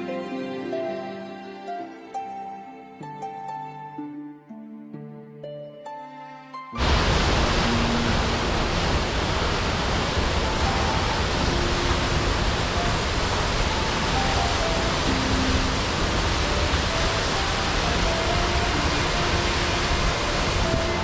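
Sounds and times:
faint sustained music notes: 0:00.0 - 0:21.0
rushing water: 0:06.8 - 0:21.0.

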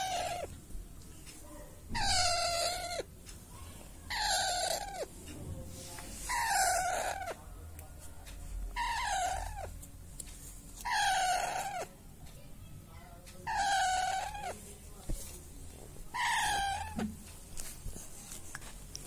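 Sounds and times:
parakeet chick calling: 0:02.0 - 0:03.1, 0:10.9 - 0:11.9, 0:13.5 - 0:14.6, 0:16.2 - 0:17.0.

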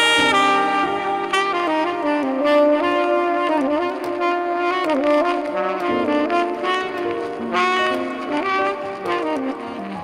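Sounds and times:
tenor saxophone: 0:00.0 - 0:10.0.

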